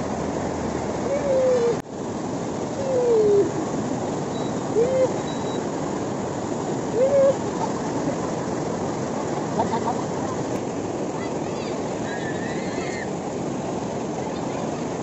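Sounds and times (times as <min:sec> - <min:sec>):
foaming water rushing around legs: 0:00.0 - 0:15.0
person crying out: 0:07.0 - 0:07.4.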